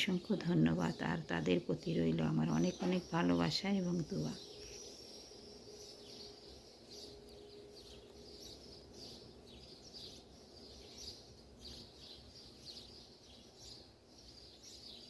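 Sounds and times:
low steady hum: 0.0 - 15.0
small birds chirping: 0.0 - 15.0.

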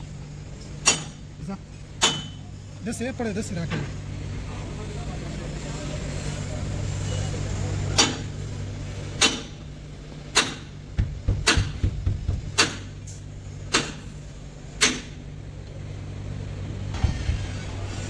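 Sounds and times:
sharp knocks on window glass: 10.3 - 12.9.

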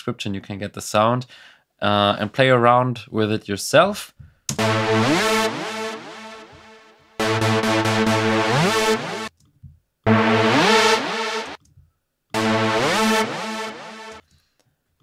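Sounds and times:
buzzy synth lead gliding upward: 4.6 - 9.3, 10.1 - 11.6, 12.4 - 14.2.

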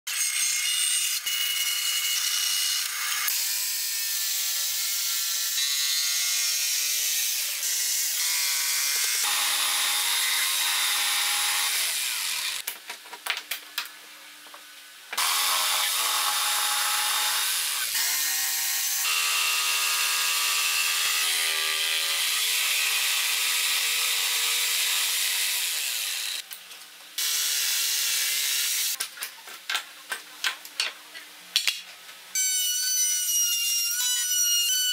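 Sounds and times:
band saw cutting wood: 0.1 - 12.6, 15.2 - 26.4
jigsaw cutting wood: 6.3 - 12.6, 15.2 - 26.4, 27.2 - 29.0.

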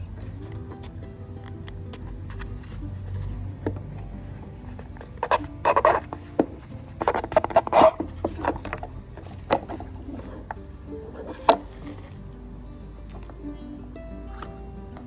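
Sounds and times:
cardboard lid scraping: 2.3 - 10.6, 11.3 - 12.2.

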